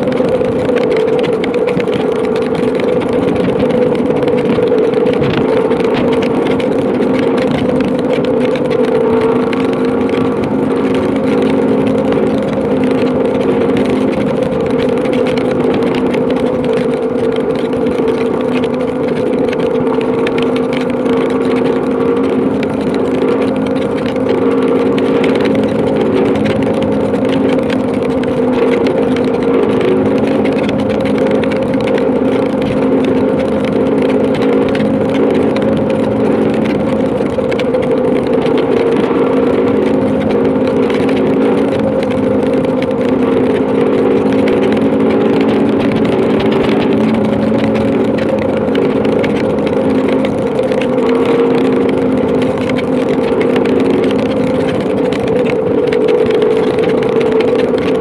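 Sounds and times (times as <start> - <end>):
wind rushing on microphone: 0.0 - 12.8
heavy rain on microphone: 0.0 - 58.0
motorcycle engine droning: 0.0 - 58.0.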